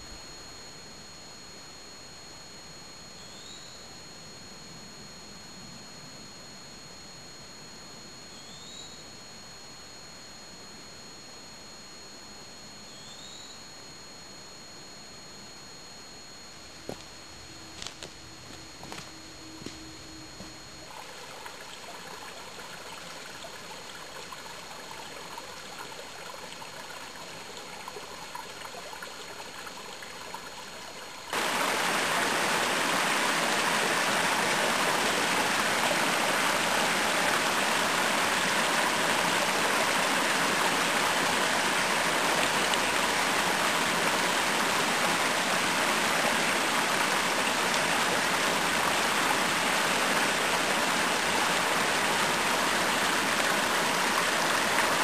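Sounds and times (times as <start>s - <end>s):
creek water rushing over rocks: 31.3s - 55.0s.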